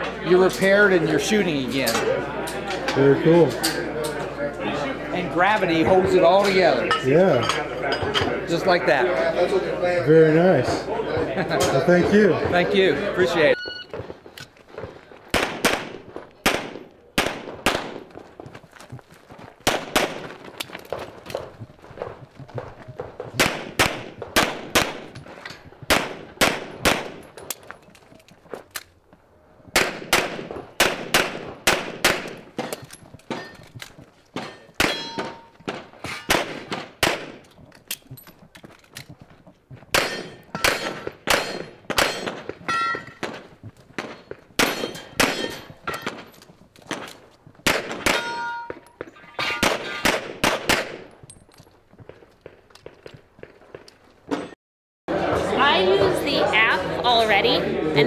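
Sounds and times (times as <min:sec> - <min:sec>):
pistol shots: 0:15.3 - 0:18.1, 0:19.6 - 0:20.4, 0:23.3 - 0:25.2, 0:25.9 - 0:27.2, 0:29.8 - 0:33.5, 0:34.4 - 0:37.4, 0:39.9 - 0:46.3, 0:46.9 - 0:48.8, 0:49.5 - 0:51.1
steel targets ringing: 0:34.4 - 0:35.6, 0:40.0 - 0:43.2, 0:44.6 - 0:46.2, 0:48.1 - 0:50.1.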